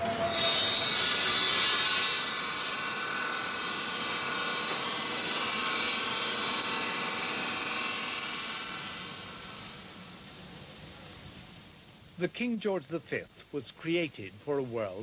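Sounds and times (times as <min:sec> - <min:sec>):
steel bar grinding on abrasive wheel: 0:00.0 - 0:09.7.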